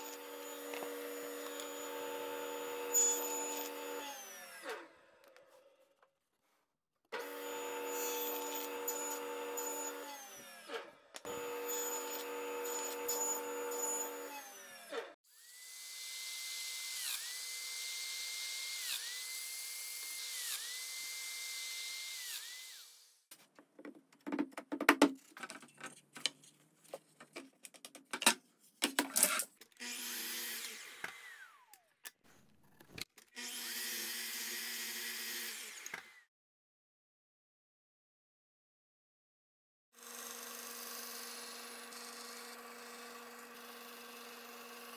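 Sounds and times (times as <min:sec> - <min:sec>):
table saw whine: 0:00.0 - 0:04.8, 0:07.2 - 0:19.5
miter saw cutting: 0:00.0 - 0:05.0, 0:07.2 - 0:23.2, 0:29.8 - 0:31.9.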